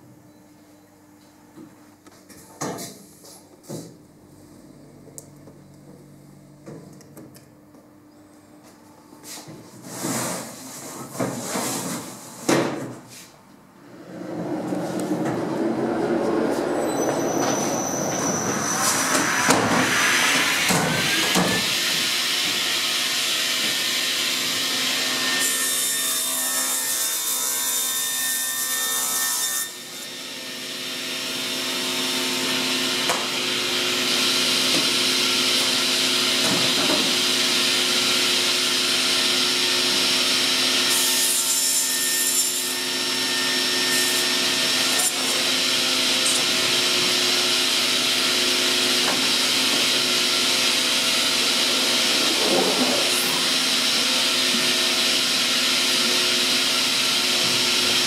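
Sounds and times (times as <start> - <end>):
panel saw cutting wood: 17.4 - 58.0.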